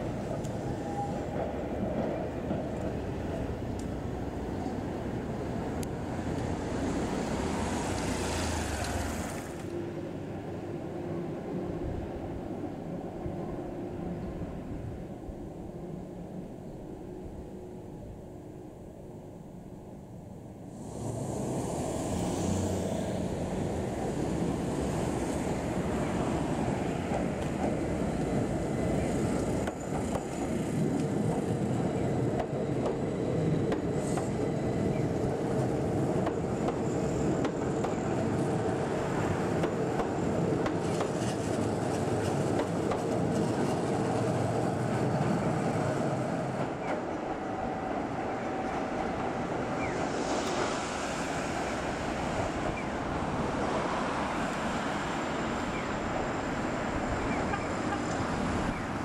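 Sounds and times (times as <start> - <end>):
electric train passing: 0.0 - 59.0.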